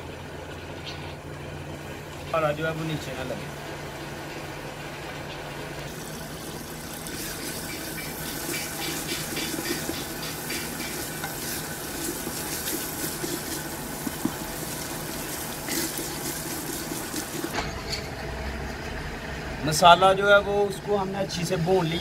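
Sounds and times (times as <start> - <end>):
spatula scraping clay pot: 7.2 - 17.5.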